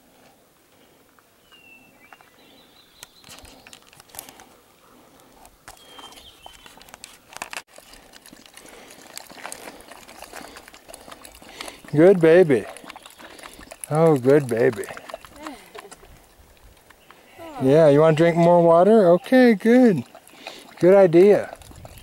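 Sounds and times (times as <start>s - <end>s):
bird chirping: 1.4s - 3.9s, 5.7s - 6.9s
footsteps on gravel: 5.7s - 16.0s
dog lapping water: 7.7s - 17.0s, 17.6s - 22.0s.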